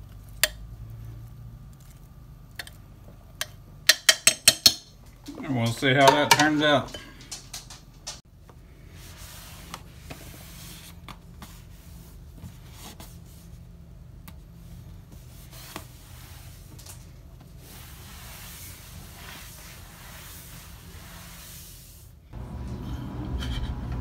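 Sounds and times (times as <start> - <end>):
low steady hum: 0.0 - 24.0
towel rubbing on countertop: 8.8 - 13.6, 15.0 - 16.8, 17.5 - 22.2.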